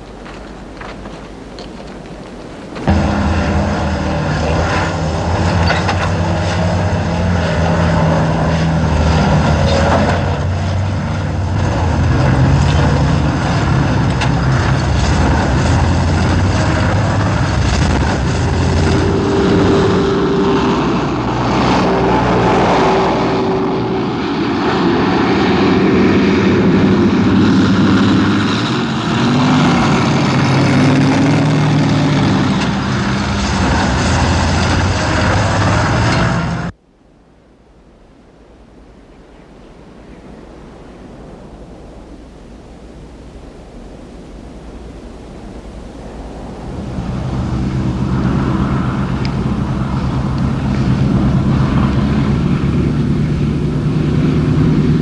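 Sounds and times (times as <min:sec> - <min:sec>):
truck engines running: 0:00.0 - 0:36.8, 0:37.4 - 0:55.0
wavering whining tone: 0:01.4 - 0:25.0.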